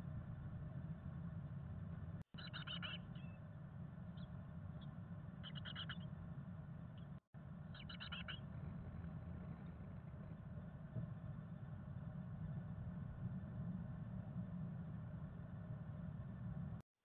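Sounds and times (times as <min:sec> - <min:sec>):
low steady hum: 0:00.0 - 0:16.8
chickadee calls: 0:02.3 - 0:03.4, 0:04.2 - 0:06.1, 0:07.7 - 0:08.5.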